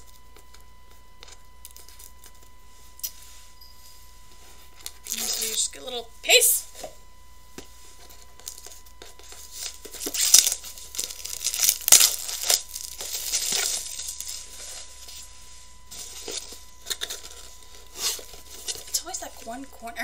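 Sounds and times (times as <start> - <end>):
packaging tearing and crinkling: 4.8 - 5.6, 8.4 - 15.3, 15.9 - 19.4.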